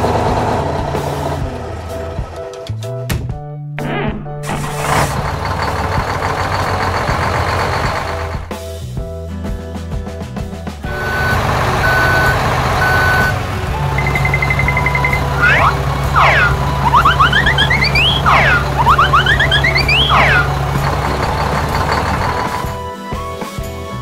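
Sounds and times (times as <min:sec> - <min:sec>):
truck engine hum: 0:04.4 - 0:08.5, 0:10.9 - 0:22.9
reversing beeps: 0:10.9 - 0:13.4, 0:14.0 - 0:20.6
whistle-like glides: 0:14.2 - 0:20.6.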